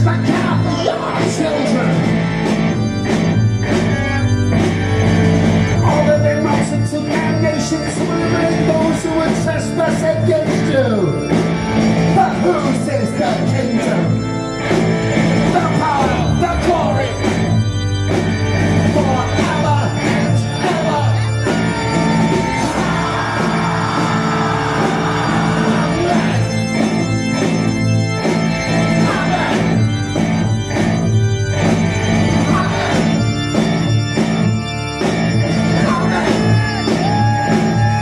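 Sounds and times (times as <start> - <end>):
man singing: 0.0 - 2.0, 22.6 - 26.5, 28.9 - 29.7
rock band playing: 0.0 - 38.0.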